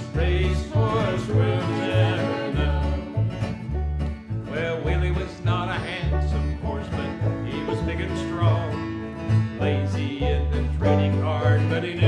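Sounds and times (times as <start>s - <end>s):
acoustic guitar picking: 0.0s - 12.0s
banjo picking: 0.0s - 12.0s
upright bass plucking: 0.0s - 12.0s.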